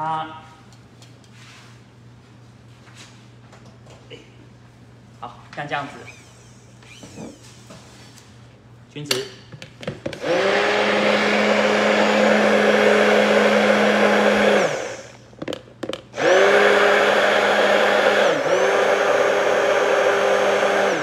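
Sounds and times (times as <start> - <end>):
immersion blender running: 10.2 - 15.2, 16.1 - 21.0.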